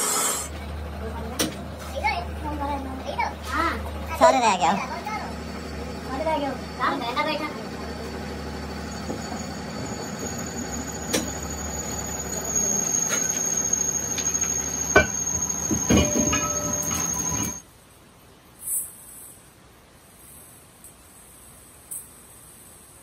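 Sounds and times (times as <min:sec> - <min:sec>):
lathe machine hum: 0:00.0 - 0:17.6
high-pitched squeal: 0:05.0 - 0:17.6.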